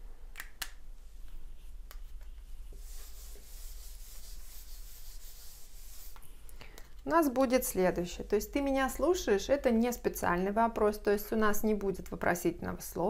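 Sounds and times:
eraser rubbing on whiteboard: 2.7s - 6.2s.

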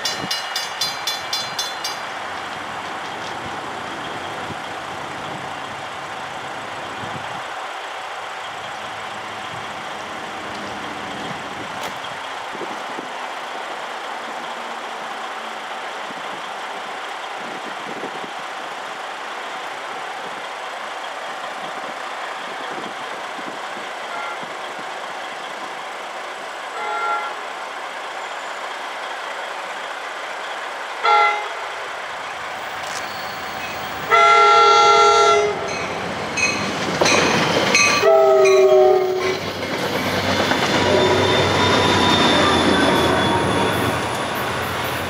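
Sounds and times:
railroad crossing bells ringing: 0.0s - 7.0s, 32.3s - 45.0s
train horn blasts: 24.1s - 24.5s, 26.8s - 27.5s, 31.0s - 31.8s, 34.0s - 35.8s, 37.9s - 39.4s.

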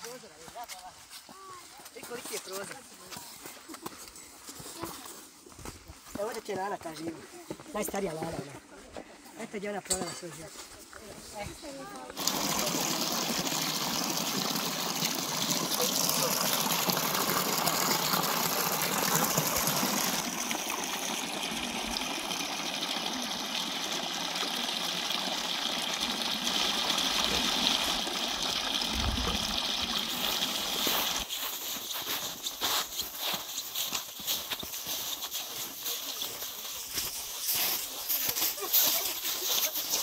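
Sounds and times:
fountain water splashing: 12.2s - 40.0s.

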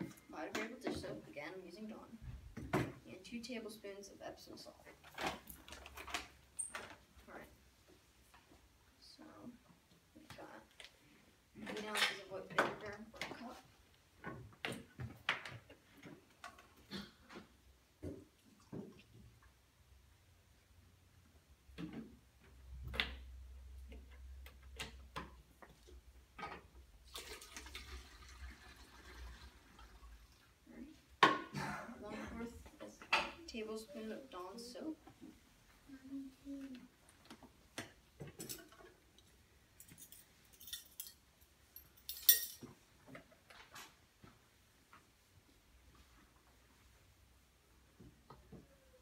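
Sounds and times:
liquid pouring into bottle: 27.1s - 30.2s
metal spoons clinking: 41.9s - 42.6s.

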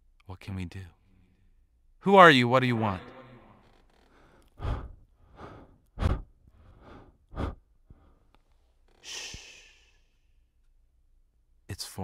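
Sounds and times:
heavy human breathing: 4.1s - 8.3s, 9.0s - 10.1s.

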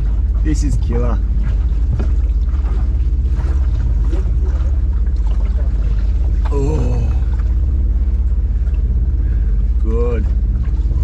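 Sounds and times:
boat engine droning: 0.0s - 11.0s
water wash and wind: 0.0s - 11.0s.

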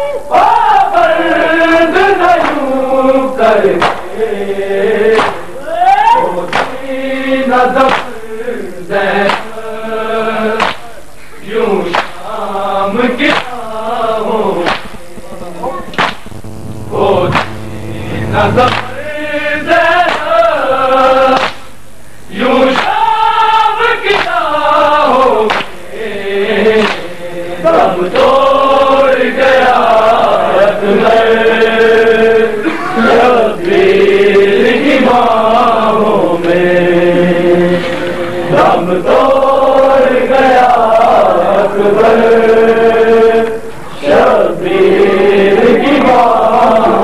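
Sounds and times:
men chanting a lament: 22.3s - 47.0s.

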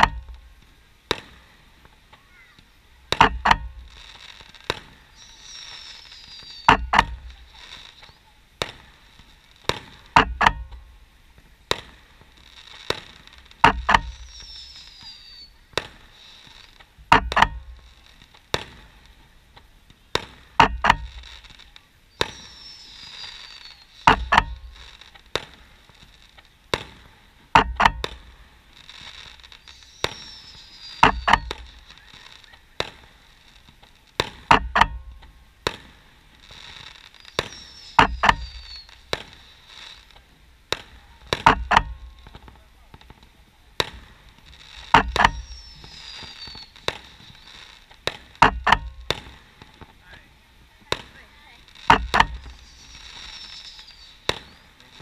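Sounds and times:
distant fireworks bangs: 0.0s - 55.0s
falling firework whistle: 1.1s - 8.9s, 12.9s - 17.8s, 20.1s - 26.0s, 27.8s - 33.4s, 34.2s - 42.7s, 43.8s - 49.8s, 51.9s - 55.0s.

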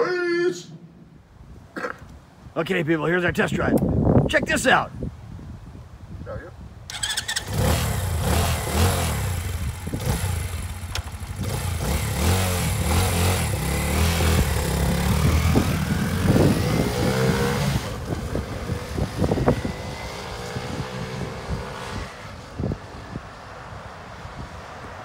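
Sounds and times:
motorcycle engine revving: 6.9s - 22.6s
motorcycle pulling away: 6.9s - 22.9s.

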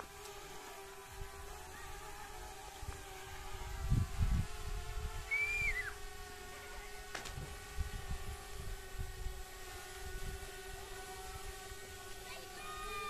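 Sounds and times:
drone propellers humming: 0.0s - 13.0s
wind gusting on microphone: 2.8s - 6.2s, 7.2s - 12.1s.

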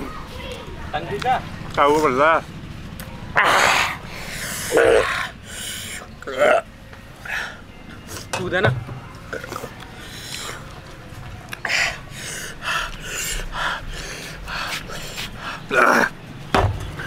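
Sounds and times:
person gasping and breathing hard: 11.6s - 16.0s.

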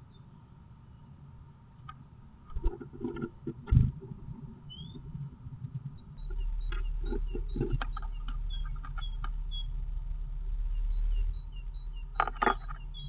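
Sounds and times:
steady low rumble: 0.0s - 13.0s
bird scrabbling in nest box: 2.5s - 4.0s, 6.7s - 9.2s
claws scratching and knocking: 2.5s - 4.2s, 6.7s - 9.4s, 12.2s - 12.9s
faint high peeps: 6.2s - 9.7s.

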